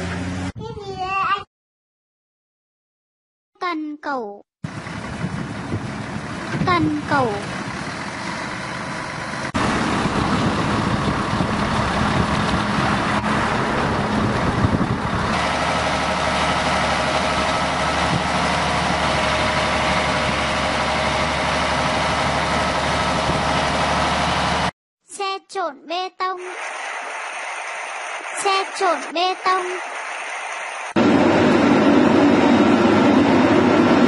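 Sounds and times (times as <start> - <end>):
excavator diesel engines working: 4.7 - 24.7, 26.5 - 34.0
multi-tone machine whine: 26.5 - 34.0.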